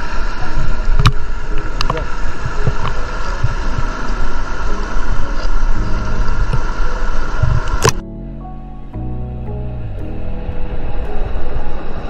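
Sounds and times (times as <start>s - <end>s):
wind on microphone: 0.0s - 8.0s
faint steady hum: 0.0s - 12.0s.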